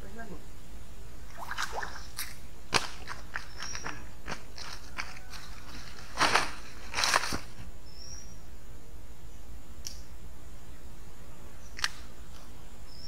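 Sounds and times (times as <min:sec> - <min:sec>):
footsteps crunching dry leaves: 0:02.7 - 0:07.7.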